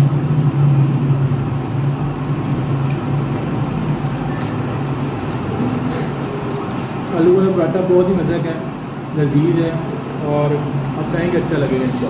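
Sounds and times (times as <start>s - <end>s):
low mechanical hum: 0.0s - 12.0s.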